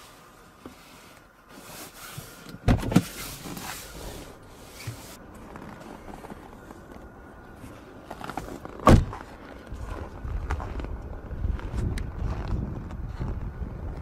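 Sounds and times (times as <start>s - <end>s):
rustling of person moving: 0.0s - 14.0s
car door shutting: 2.3s - 3.8s, 8.7s - 9.2s.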